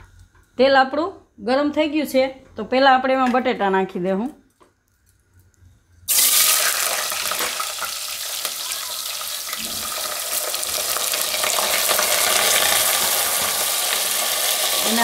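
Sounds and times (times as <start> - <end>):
potatoes sizzling in hot oil: 6.1 - 15.0.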